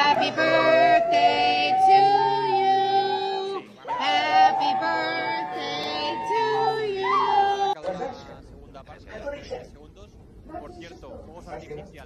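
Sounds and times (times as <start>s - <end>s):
dog howling: 0.0s - 7.8s.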